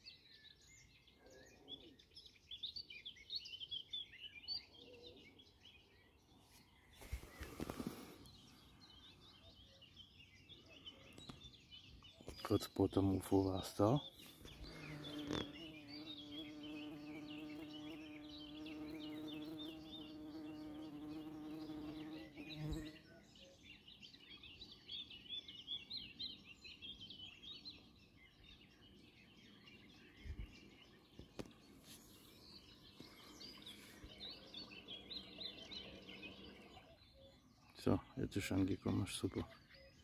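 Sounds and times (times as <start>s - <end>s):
small birds chirping: 0.0s - 40.0s
flying insect buzzing: 14.5s - 23.0s.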